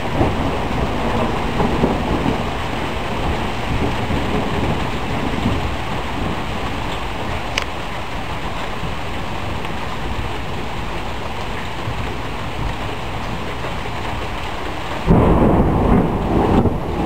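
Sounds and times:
thunder rumbling: 0.0s - 6.9s, 15.0s - 17.0s
heavy rain: 0.0s - 17.0s.

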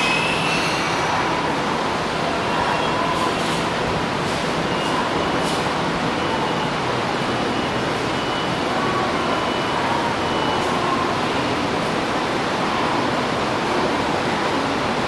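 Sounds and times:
electric train rumbling past: 0.0s - 4.8s.

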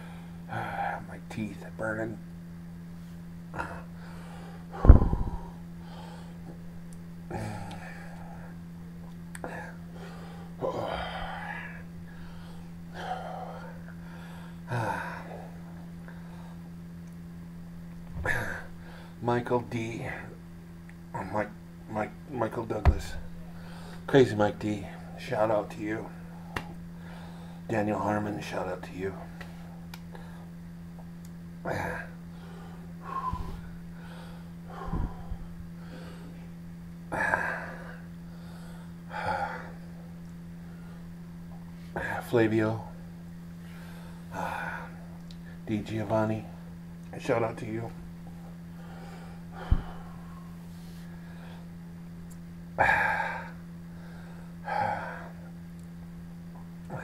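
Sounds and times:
man panting heavily: 9.4s - 16.7s, 31.7s - 36.4s, 37.1s - 40.0s, 43.8s - 45.1s, 48.7s - 51.7s, 52.8s - 55.5s.

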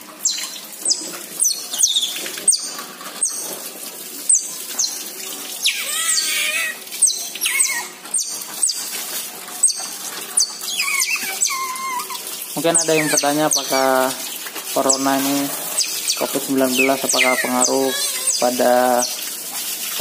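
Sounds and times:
otters chirping: 0.2s - 3.5s, 4.3s - 5.0s, 5.6s - 8.9s, 9.6s - 14.1s, 14.8s - 19.2s
otter wavering squeal: 5.6s - 8.9s, 9.6s - 13.8s, 15.8s - 18.6s.

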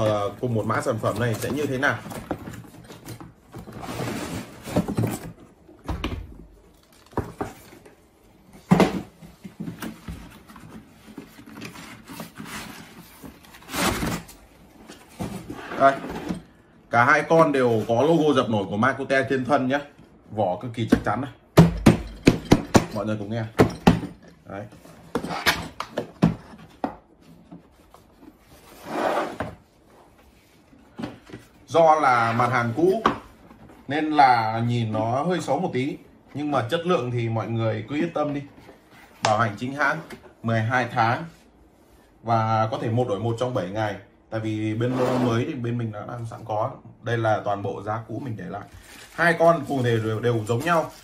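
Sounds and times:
cardboard rustling and scraping: 0.0s - 5.6s, 6.7s - 16.6s, 26.2s - 34.2s, 48.4s - 51.0s.

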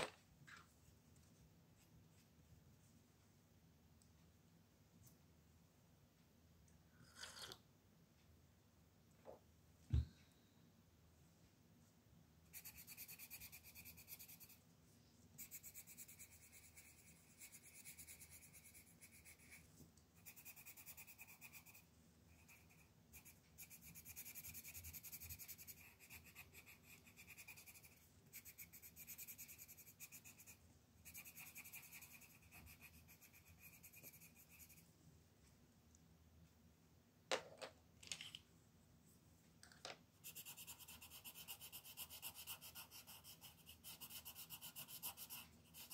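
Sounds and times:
colored pencil scratching on paper: 12.5s - 14.6s, 15.4s - 34.8s, 40.2s - 45.9s.

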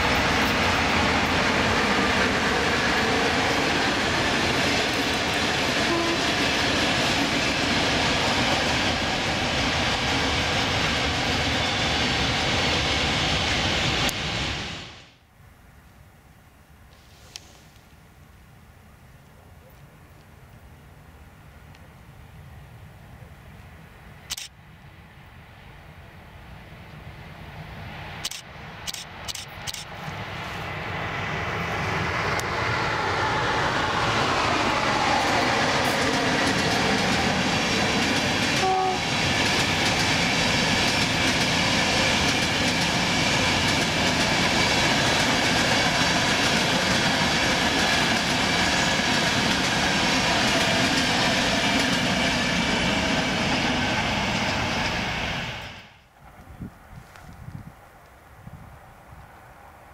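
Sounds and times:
locomotive whine: 0.0s - 15.0s, 25.7s - 56.6s
sharp clicks: 28.2s - 29.9s
coaches rumbling over rail joints: 30.7s - 55.5s.

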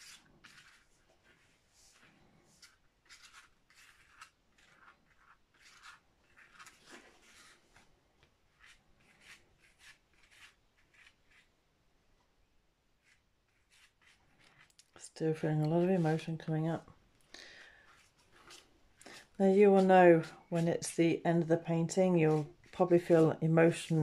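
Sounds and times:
paintbrush scratching on paper: 0.0s - 7.8s, 8.5s - 11.5s, 13.0s - 16.5s, 17.8s - 24.0s.

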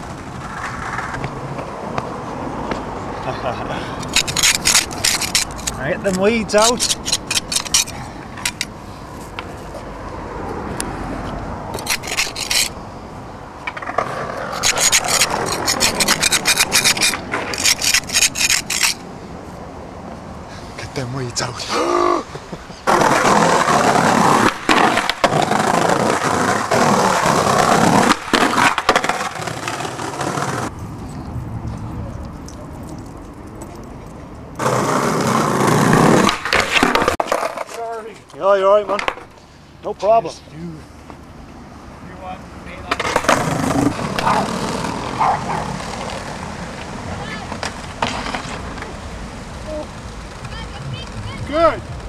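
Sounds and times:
skateboard wheels on brick paving: 0.0s - 3.1s, 3.7s - 12.8s, 13.6s - 19.1s, 21.4s - 30.8s, 34.6s - 39.4s, 42.7s - 52.0s
car passing: 0.0s - 52.0s
weeds scraped from concrete: 4.0s - 9.4s, 11.8s - 12.8s, 14.4s - 19.0s.

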